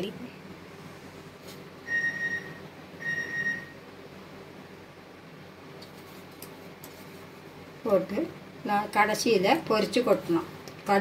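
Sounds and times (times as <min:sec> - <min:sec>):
faint steady hum: 0:00.0 - 0:11.0
short electronic beeps: 0:01.8 - 0:03.8.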